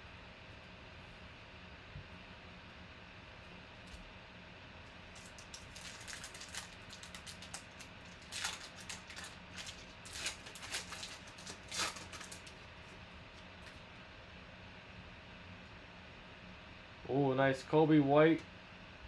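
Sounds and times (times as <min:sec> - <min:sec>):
foil wrapper crinkling and tearing: 0:05.1 - 0:12.6.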